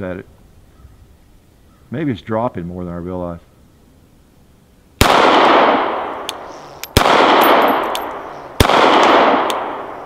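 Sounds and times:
suppressed pistol shots echoing: 5.0 - 10.0.

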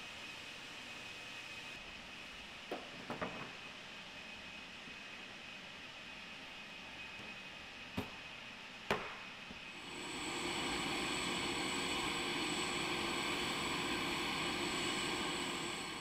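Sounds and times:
jet turbines whining: 9.6 - 16.0
high steady tone: 9.8 - 16.0.

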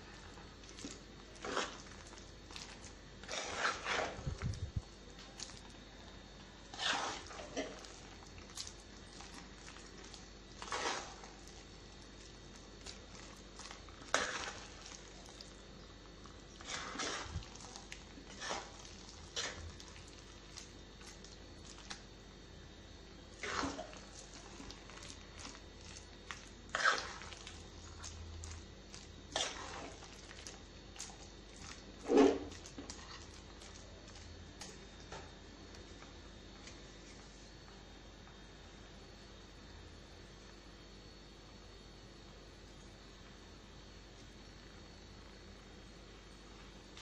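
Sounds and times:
spoon scraping and squelching: 0.2 - 5.8, 6.6 - 22.0, 23.4 - 34.9.

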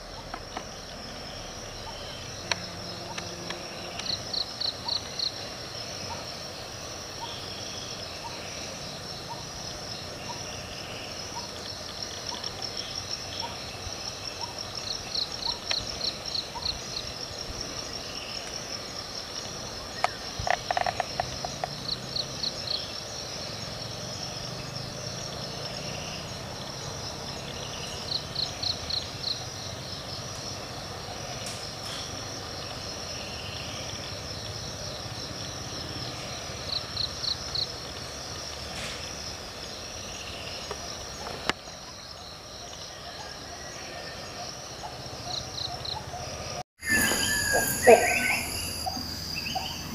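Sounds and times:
high-pitched insect drone: 0.0 - 30.6, 46.8 - 49.9
lower pulsed animal call: 46.8 - 49.9
pulsed chirping trills: 46.8 - 49.9.

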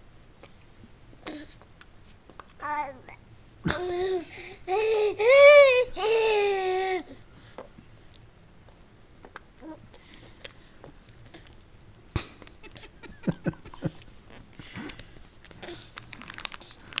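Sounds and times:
baby mouth smacking sounds: 1.6 - 2.6, 7.6 - 9.5.

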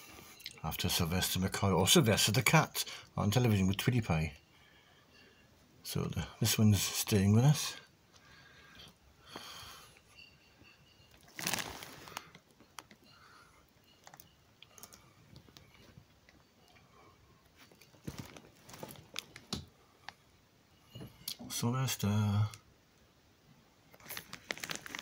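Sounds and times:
kitten rustling on a blanket: 11.2 - 12.3.

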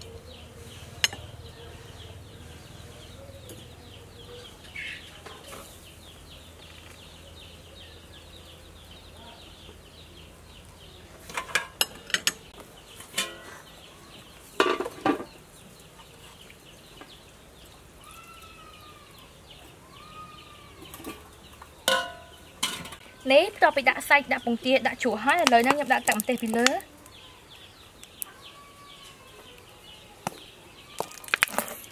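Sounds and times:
metal kitchenware clinking: 13.1 - 13.6, 20.9 - 23.0.

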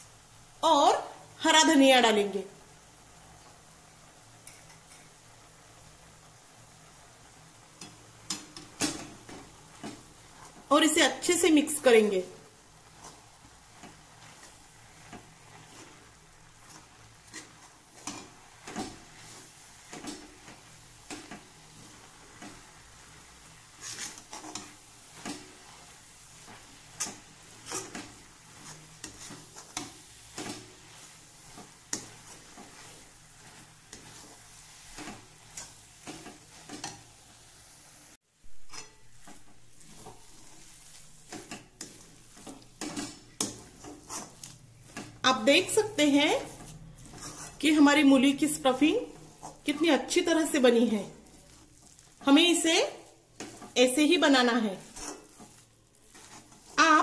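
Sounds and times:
low sizzle from pan: 0.0 - 57.0
spatula scraping metal pan: 12.8 - 37.4, 38.6 - 57.0.

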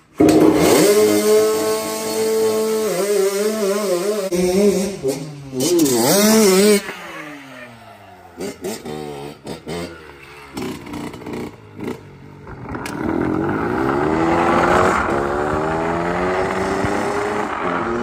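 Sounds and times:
dirt bike engine revving: 0.2 - 18.0.

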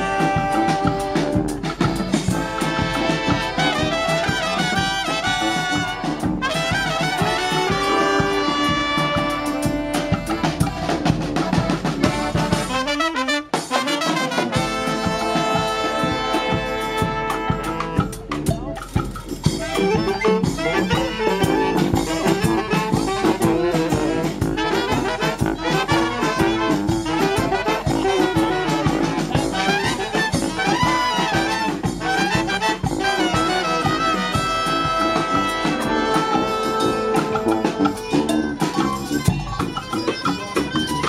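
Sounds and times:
steady drum beat: 0.0 - 41.0
trumpets and saxophones: 0.0 - 41.0.

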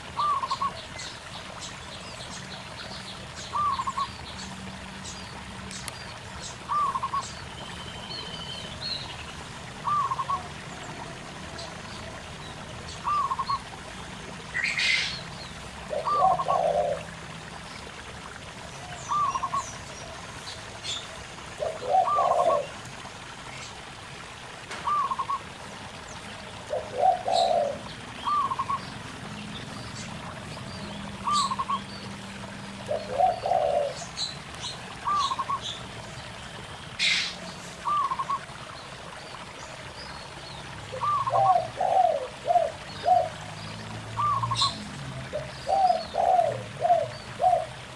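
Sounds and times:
stream gurgling: 0.0 - 47.9
doves cooing: 3.5 - 4.1, 15.8 - 17.2, 21.6 - 22.8, 26.6 - 28.8, 32.9 - 34.1, 37.0 - 38.5, 40.9 - 43.5, 44.1 - 47.9
small birds chirping: 26.7 - 32.1.

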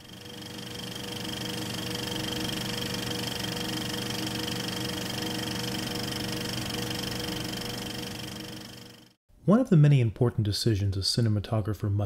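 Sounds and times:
film projector clattering: 0.0 - 9.2.

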